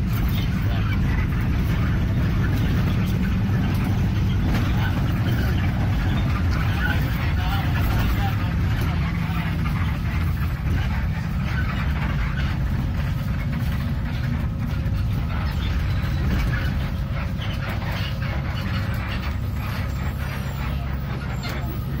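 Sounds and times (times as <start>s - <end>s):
bus engine rumble: 0.0s - 22.0s
road and cabin noise: 0.0s - 22.0s.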